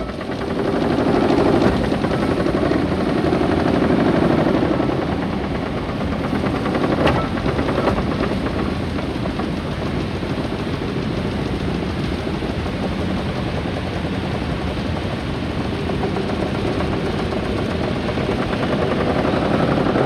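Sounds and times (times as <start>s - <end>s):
steam engine mechanical beat: 5.7s - 20.0s.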